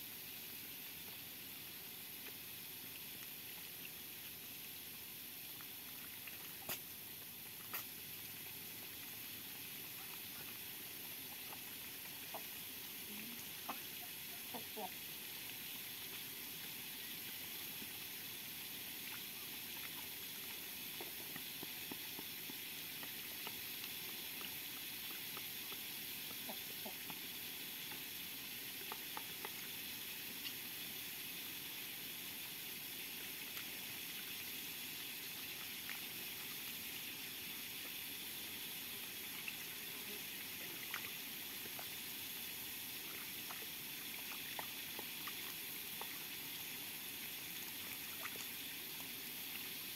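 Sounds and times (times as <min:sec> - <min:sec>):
faint steady hiss: 0:00.0 - 0:49.9
duck dabbling in puddle: 0:05.6 - 0:30.6, 0:47.4 - 0:49.2.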